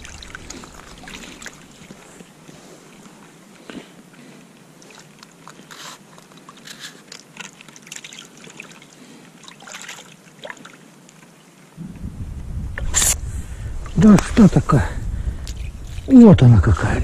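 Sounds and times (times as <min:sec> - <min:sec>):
water trickling: 0:00.0 - 0:03.4, 0:04.1 - 0:11.7
small water splashes: 0:00.0 - 0:11.7
scrapes and rustles: 0:05.0 - 0:07.8.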